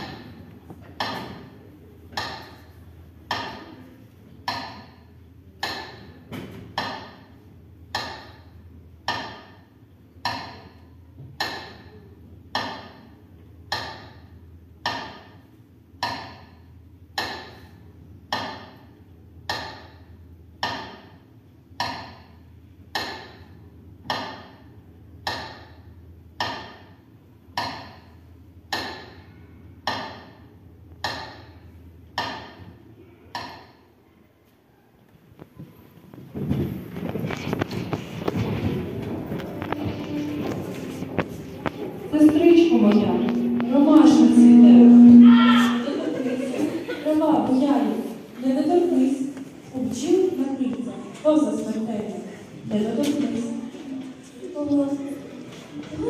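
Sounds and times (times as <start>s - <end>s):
metronome ticking over loudspeakers: 2.1s - 3.8s, 4.4s - 6.2s, 6.8s - 32.7s, 33.3s - 33.8s, 39.3s - 45.3s.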